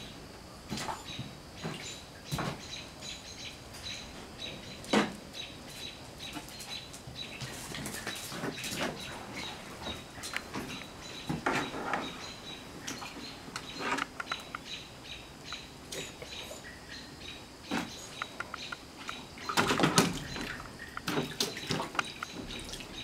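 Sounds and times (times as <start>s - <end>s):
puppies splashing in water: 17.8s - 23.0s.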